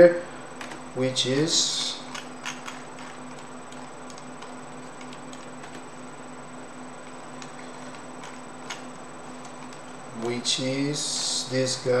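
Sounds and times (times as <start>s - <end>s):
steady low hum: 0.0s - 12.0s
computer mouse clicks: 2.1s - 5.9s.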